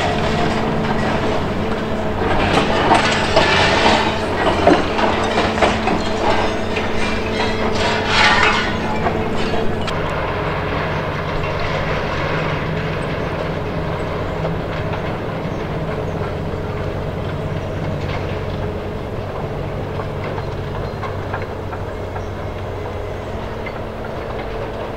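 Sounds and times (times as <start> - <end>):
debris knocks: 0.0 - 15.1
rubble crunching and falling: 0.0 - 18.8
diesel engine hum: 0.0 - 24.9.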